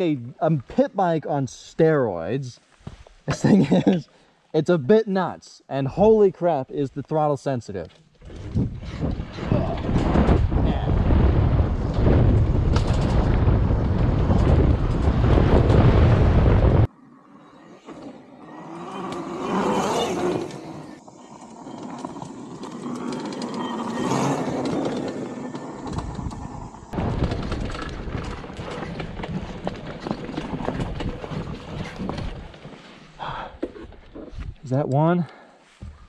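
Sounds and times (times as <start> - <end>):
wind rumble on microphone: 8.2 - 16.9, 25.8 - 32.6.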